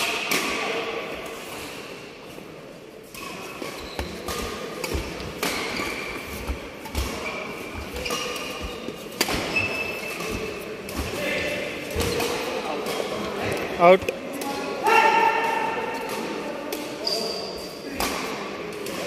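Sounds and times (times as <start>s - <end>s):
shoes squeaking on court: 3.2s - 11.1s.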